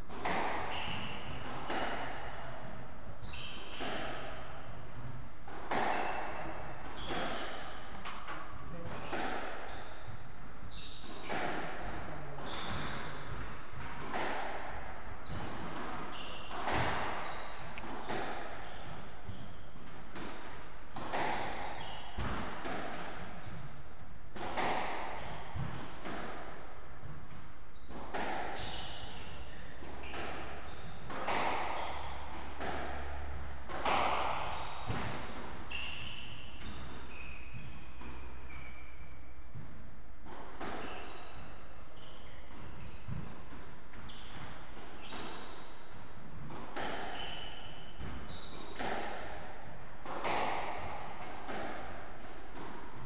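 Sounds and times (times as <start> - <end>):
squash ball hitting racket and walls: 0.0 - 53.0
shoe squeaks: 0.6 - 4.5, 6.9 - 8.1, 8.9 - 13.4, 15.2 - 19.8, 20.9 - 22.3, 25.1 - 25.6, 27.7 - 32.3, 34.0 - 35.0, 35.7 - 43.2, 44.0 - 45.9, 47.1 - 48.9, 52.8 - 53.0.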